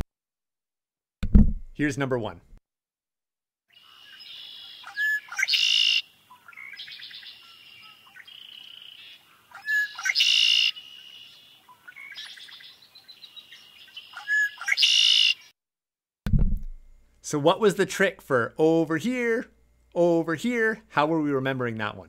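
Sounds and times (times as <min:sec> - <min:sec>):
blackbird song with harsh trill: 0:03.7 - 0:15.5
soft bird calls: 0:03.7 - 0:15.5.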